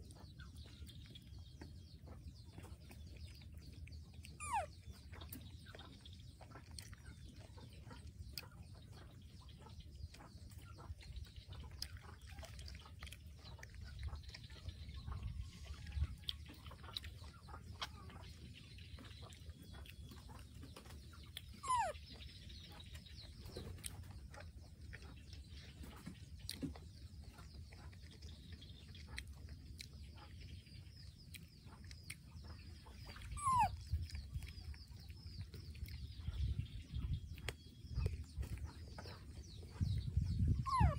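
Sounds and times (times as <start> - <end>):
baby monkey high calls: 4.2 - 5.0, 21.4 - 22.2, 33.1 - 34.2, 40.5 - 40.9.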